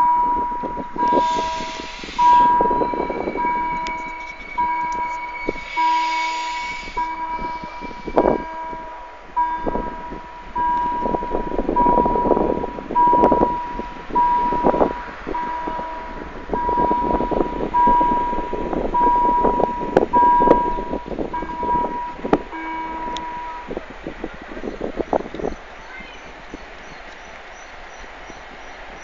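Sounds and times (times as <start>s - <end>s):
rushing noise: 0.0s - 20.2s
level crossing warning bell: 0.0s - 26.2s.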